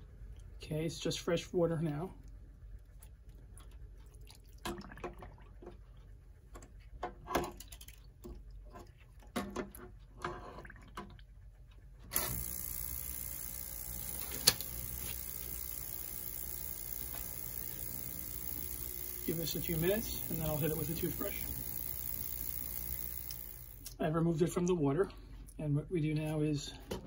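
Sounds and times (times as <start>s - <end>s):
ultrasonic cleaner hissing and humming: 12.2s - 23.9s
sharp click: 14.2s - 15.2s.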